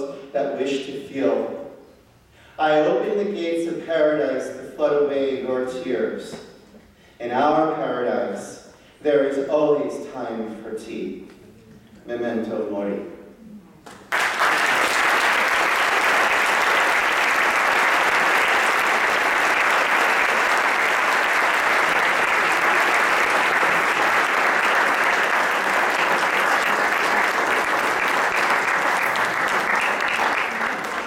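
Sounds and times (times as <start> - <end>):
audience applauding: 13.9 - 31.0.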